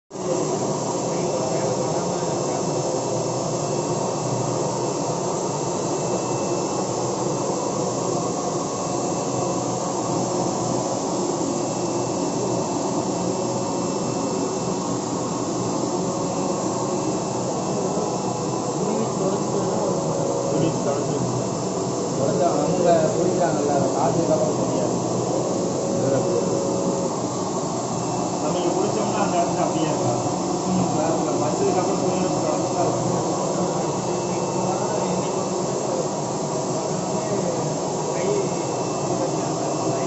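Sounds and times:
faint high whine: 0.1 - 40.0
printer whirring: 0.2 - 40.0.

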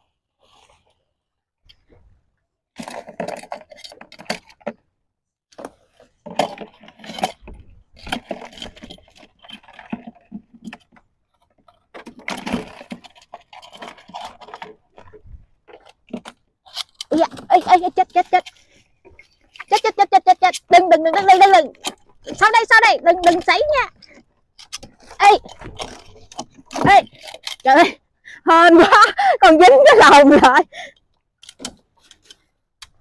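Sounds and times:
crab trap clinking and rattling: 2.8 - 4.7, 6.2 - 11.0, 11.6 - 27.8.

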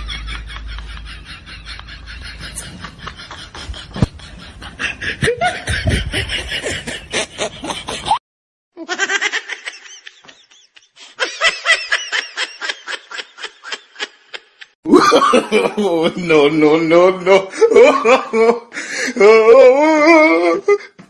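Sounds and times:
person snickering: 2.3 - 4.3, 14.9 - 15.7.

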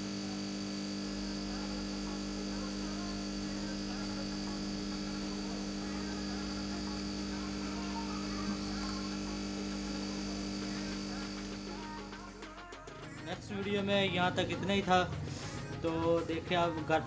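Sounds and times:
electric pump humming: 0.0 - 17.0.

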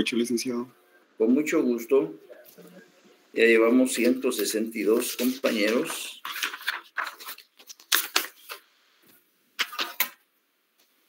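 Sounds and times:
rustling and clicking handling: 4.0 - 8.6.

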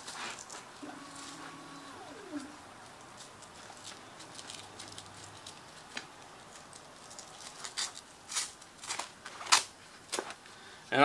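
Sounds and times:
velcro rasps: 3.1 - 10.3.

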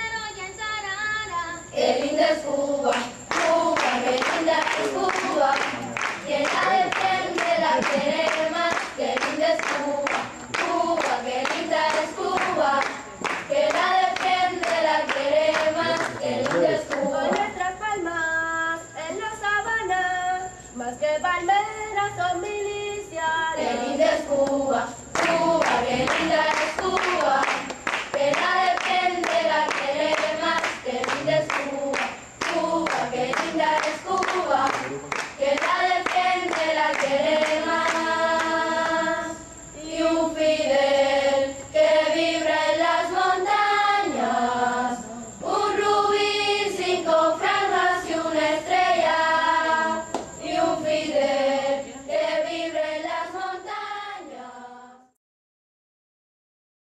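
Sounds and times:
choir singing: 1.6 - 17.8, 23.4 - 55.1.

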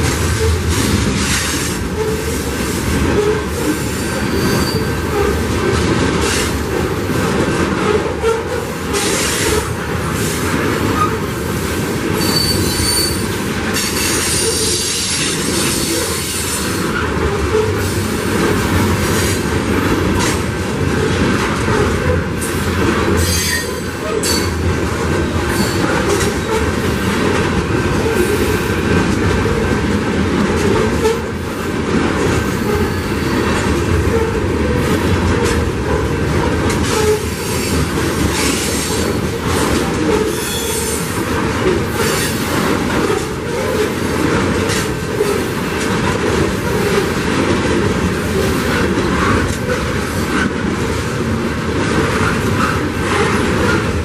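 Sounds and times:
freight train wheels rumbling: 0.0 - 54.0
high-pitched wheel squeals: 4.4 - 4.9, 12.2 - 13.2.

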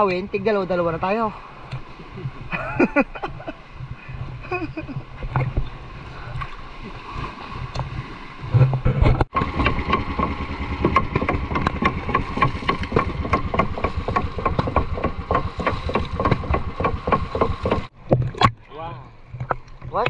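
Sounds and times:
boat engine chugging: 9.3 - 17.9.

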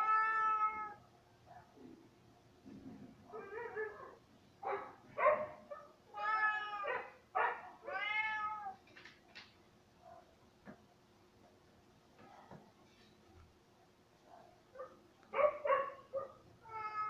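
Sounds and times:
cat meowing: 0.0 - 1.0, 6.1 - 7.2, 7.8 - 8.8, 16.6 - 17.0.

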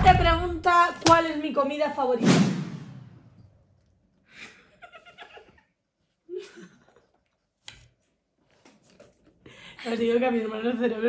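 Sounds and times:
soft giggling: 4.3 - 7.3.

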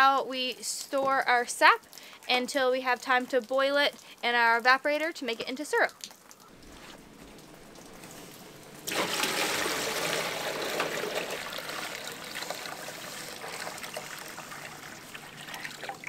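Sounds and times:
liquid pouring into a pan: 6.6 - 16.0.

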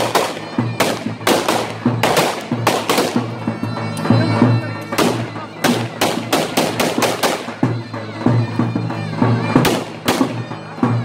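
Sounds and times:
sharp bangs: 0.0 - 3.3, 5.0 - 7.6
zurna melody: 0.0 - 11.0.

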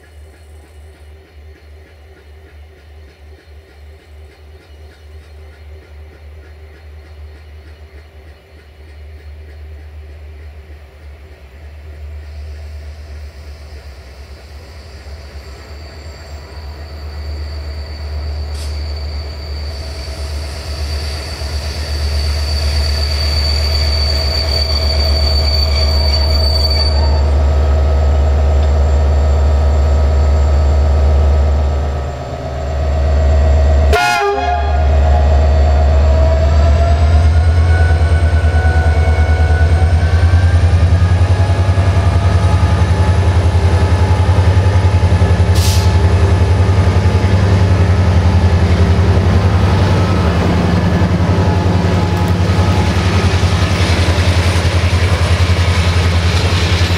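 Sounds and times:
locomotive engine drone: 0.0 - 56.9
train horn blast: 33.8 - 35.6.

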